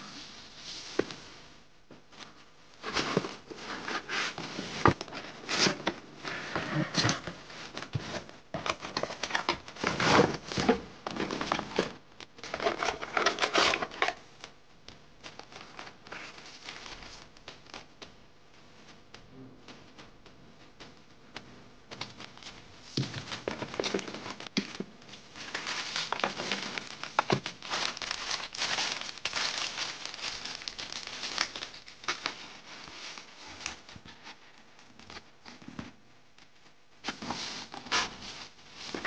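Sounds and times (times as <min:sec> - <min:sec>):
cardboard and plastic packaging rustling: 0:01.9 - 0:14.4, 0:15.2 - 0:18.0, 0:21.9 - 0:39.0.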